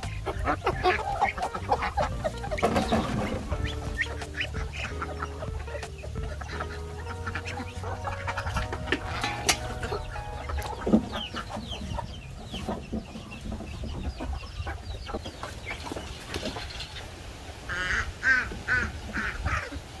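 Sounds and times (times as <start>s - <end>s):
high falling peeps: 0.0s - 15.8s
chickens clucking: 0.0s - 20.0s.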